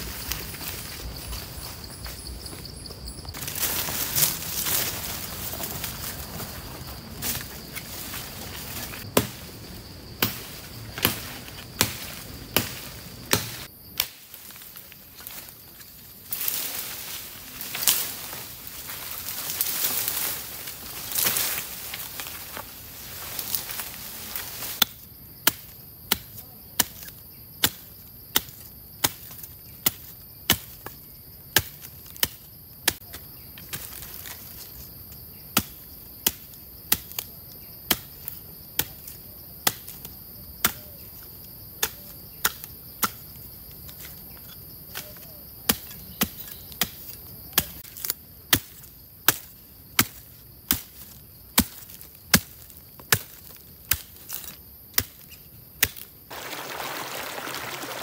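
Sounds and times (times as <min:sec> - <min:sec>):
insects droning: 0:00.0 - 0:58.0
knife chopping wood: 0:11.0 - 0:14.1.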